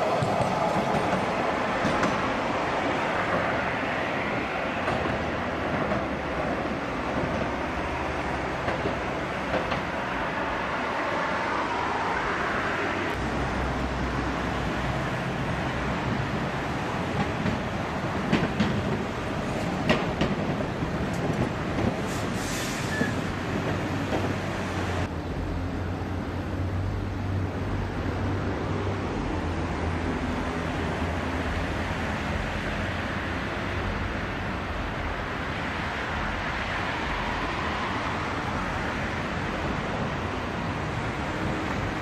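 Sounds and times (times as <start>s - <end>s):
tram wheels clacking over rail joints: 0.0s - 10.4s, 14.7s - 25.1s
passing traffic: 0.0s - 42.0s
tram wheel squeal: 21.9s - 25.0s.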